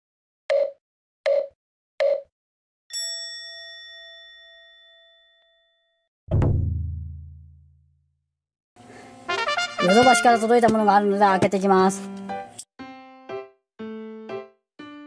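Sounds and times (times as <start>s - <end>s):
bright bell-like ding: 2.9s - 6.0s.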